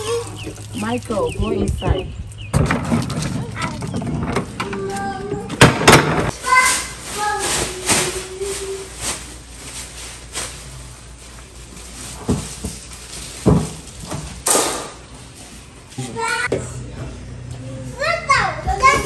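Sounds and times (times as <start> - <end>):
knocks and thumps: 2.5 - 6.4, 13.4 - 14.4.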